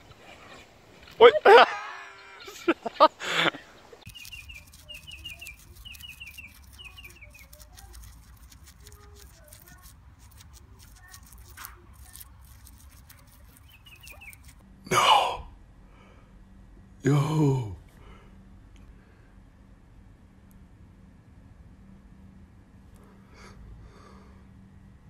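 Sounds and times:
bird chirping: 0.0s - 14.6s
guinea pigs chewing leaf: 4.0s - 14.6s
short loud vocal sounds: 14.9s - 15.5s, 17.0s - 17.8s.

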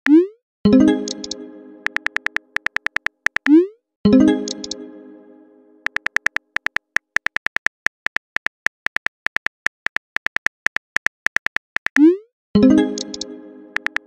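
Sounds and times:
phone keyboard typing clicks: 1.1s - 3.6s, 5.8s - 12.1s, 13.0s - 14.0s.

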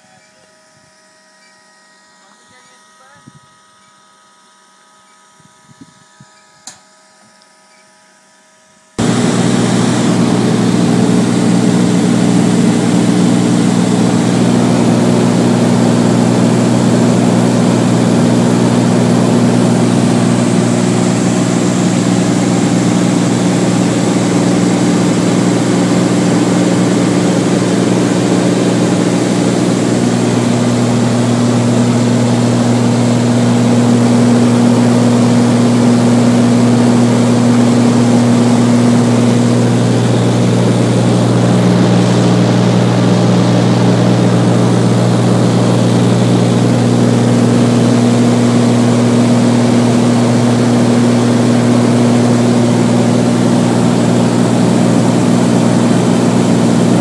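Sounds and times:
piston engine and propeller drone: 9.0s - 57.0s.

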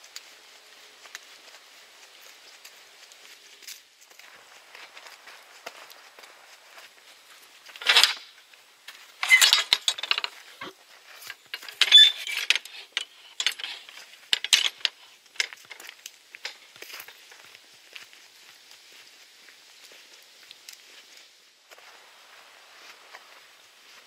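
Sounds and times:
metal gate latch clanking: 7.8s - 8.2s, 9.2s - 10.2s, 11.6s - 12.6s.

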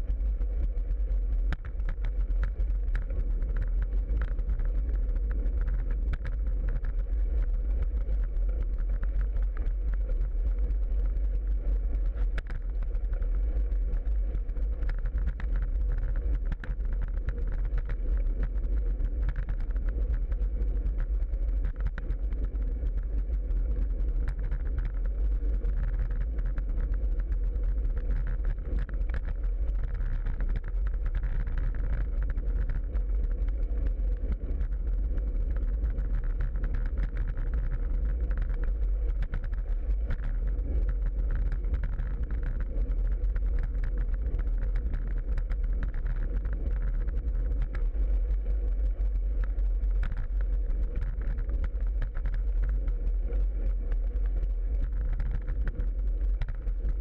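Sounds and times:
faint steady hum: 0.0s - 57.0s
small clicks and rattles: 0.0s - 57.0s.

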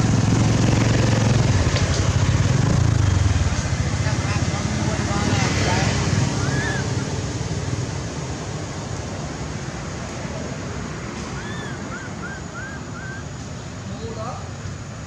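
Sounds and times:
rushing outdoor background noise: 0.0s - 15.0s.

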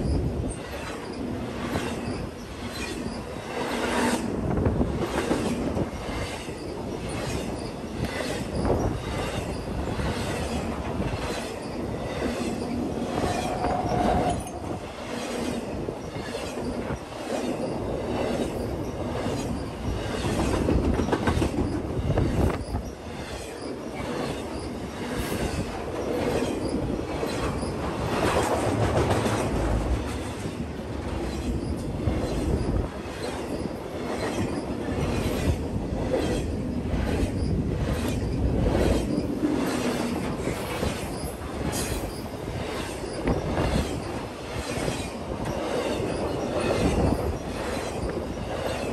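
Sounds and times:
freight train wheels rumbling: 0.0s - 48.9s
wheel squeal: 11.3s - 17.8s.

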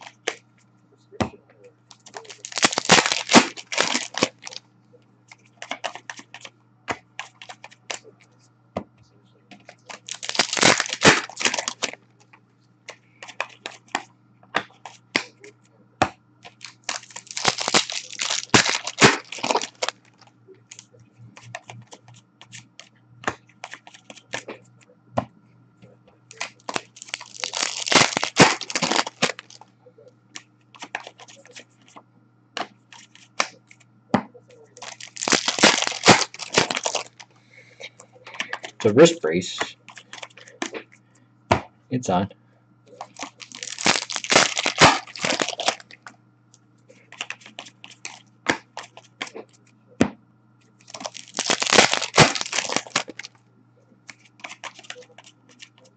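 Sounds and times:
card wrappers torn and crinkled: 0.0s - 0.4s, 1.9s - 4.6s, 5.6s - 6.5s, 7.2s - 8.1s, 9.6s - 12.0s, 16.4s - 22.7s, 26.3s - 29.6s, 30.3s - 31.7s, 34.7s - 37.3s, 38.3s - 40.8s, 42.9s - 46.0s, 47.0s - 49.4s, 50.8s - 53.3s, 54.1s - 55.9s
faint low hum: 0.0s - 55.9s
cards clicking and tapping: 5.5s - 8.1s, 9.5s - 15.3s, 16.0s - 20.0s, 20.7s - 24.6s.

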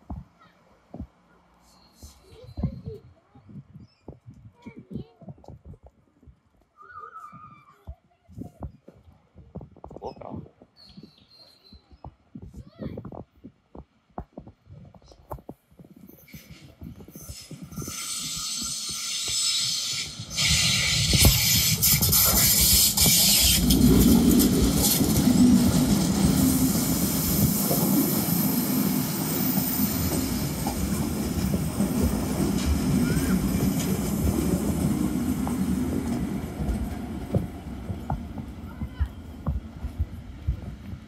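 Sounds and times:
train wheels rumbling over rails: 16.1s - 41.0s.

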